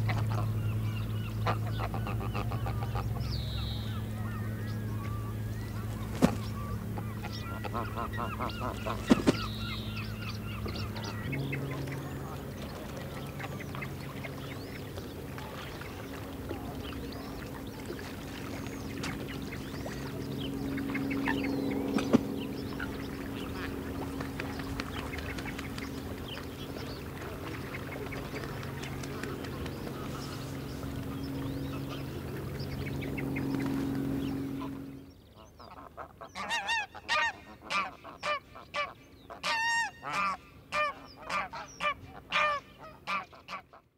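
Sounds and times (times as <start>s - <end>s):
geese honking: 0.0s - 14.5s, 35.6s - 43.9s
steady low hum: 0.0s - 43.8s
birds chirping and whistling: 3.1s - 11.9s.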